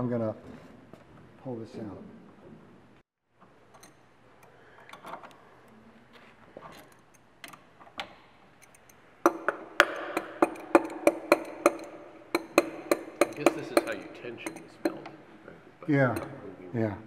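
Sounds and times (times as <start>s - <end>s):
wrench clinking on metal: 3.6s - 4.1s, 8.5s - 15.2s
machine humming and clacking: 8.6s - 15.2s.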